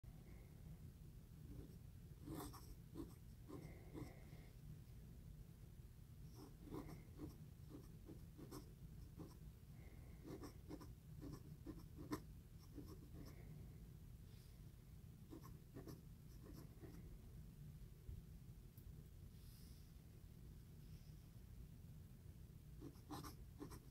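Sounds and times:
low steady hum: 0.0 - 23.9
pen nib scratching paper: 1.5 - 4.1, 6.4 - 9.4, 10.2 - 13.3, 15.3 - 17.0, 22.8 - 23.9.

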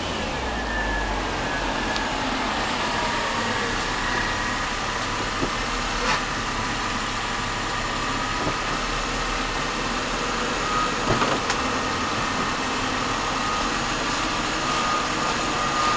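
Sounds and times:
car engine idling: 0.0 - 15.9
faint high-pitched squeal: 0.2 - 4.8, 13.0 - 15.9.

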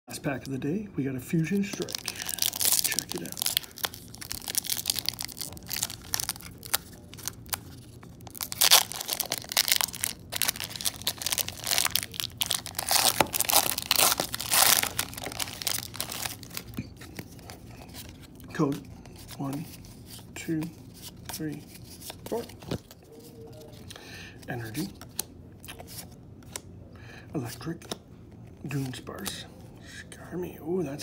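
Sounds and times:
cards rustling: 1.4 - 26.6
foil wrapper crinkling and tearing: 1.6 - 18.2.

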